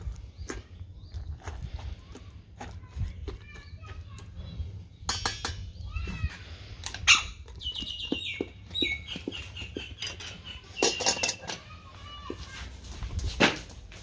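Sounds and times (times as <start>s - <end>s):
spoon tapping and scraping metal: 5.1s - 5.8s, 7.8s - 11.6s.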